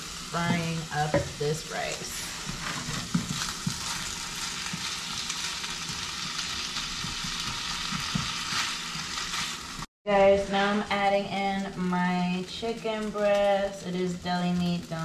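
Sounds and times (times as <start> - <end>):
rice sizzling in skillet: 0.0 - 9.9
spatula scraping pan: 0.4 - 9.8.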